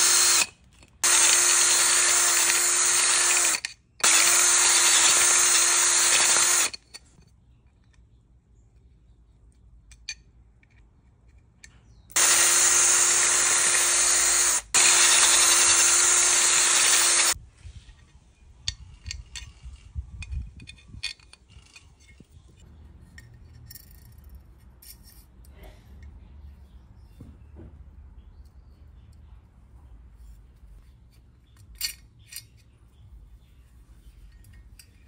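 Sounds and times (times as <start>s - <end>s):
cordless drill driving a bolt: 0.0s - 6.8s, 12.1s - 17.4s
clicks and taps of parts handled: 9.4s - 11.8s.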